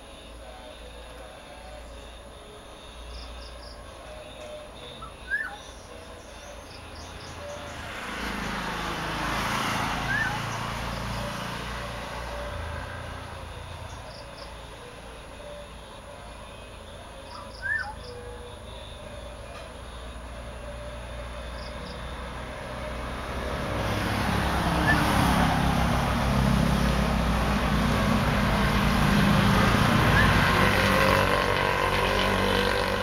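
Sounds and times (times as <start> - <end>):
vehicle passing: 0.0 - 33.0
bird giving sharp calls: 17.4 - 18.2.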